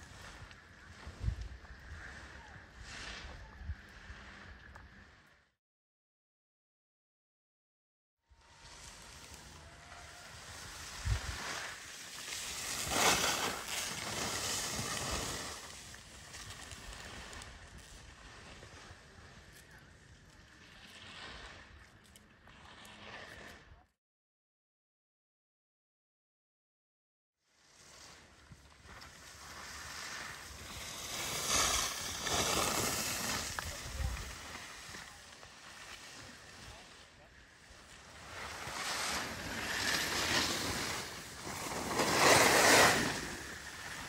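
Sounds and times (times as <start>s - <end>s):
skis scraping on snow: 0.0s - 5.2s, 8.4s - 23.8s, 27.6s - 44.0s.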